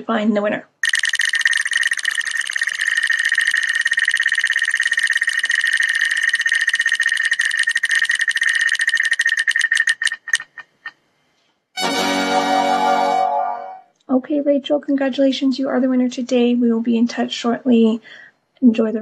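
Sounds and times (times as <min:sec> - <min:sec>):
spinning wheel ticking: 0:00.8 - 0:10.9.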